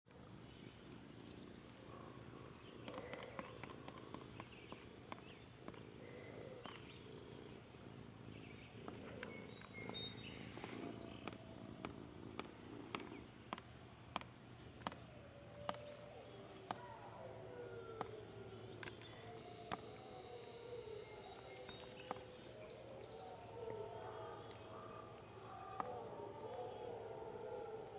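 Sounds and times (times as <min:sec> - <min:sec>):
faint low hum: 0:00.1 - 0:27.9
faint bird chirps: 0:15.2 - 0:27.1.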